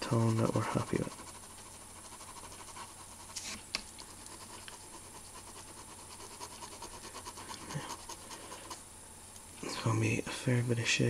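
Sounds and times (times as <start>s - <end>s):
pen scratching on paper: 0.0s - 8.8s.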